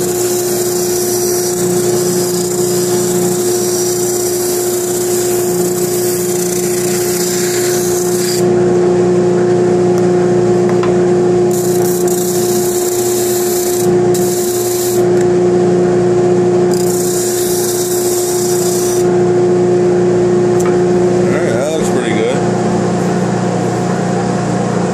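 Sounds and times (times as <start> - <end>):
wood rasping on sanding drum: 0.0 - 8.4, 11.5 - 15.0, 16.7 - 19.0
spindle sander humming: 0.0 - 9.4, 10.6 - 15.3, 16.6 - 19.2.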